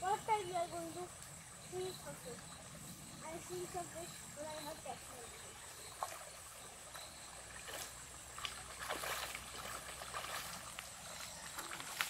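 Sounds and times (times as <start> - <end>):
stream trickling: 0.0 - 12.0
boots wading through water: 4.4 - 12.0.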